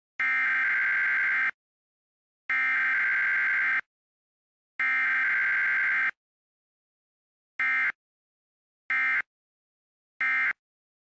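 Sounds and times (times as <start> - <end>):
electronic buzzer tone: 0.2 - 1.6, 2.5 - 3.9, 4.8 - 6.2, 7.6 - 8.0, 8.9 - 9.3, 10.2 - 10.6.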